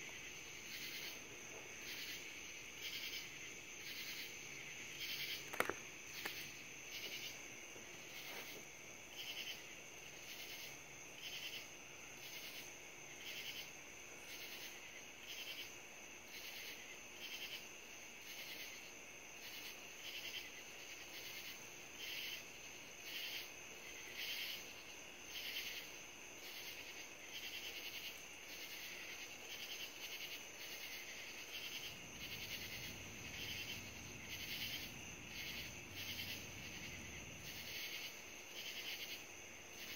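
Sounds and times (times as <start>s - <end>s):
insects trilling: 0.0s - 39.9s
pulsing insect chirps: 29.6s - 39.2s.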